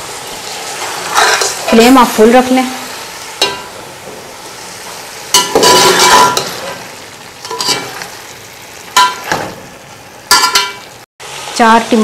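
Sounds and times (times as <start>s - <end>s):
meat sizzling in hot oil: 0.0s - 12.0s
spoon scraping and clattering pot: 0.8s - 1.9s, 3.4s - 3.8s, 5.3s - 6.8s, 7.4s - 8.1s, 10.3s - 10.8s.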